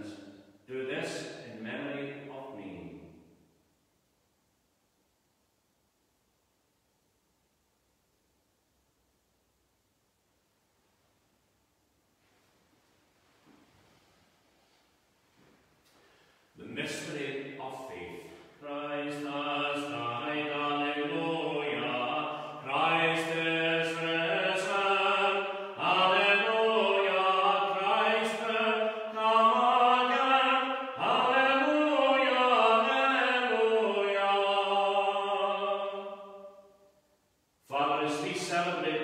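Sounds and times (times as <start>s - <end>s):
person singing chant-like melody: 16.6s - 36.6s.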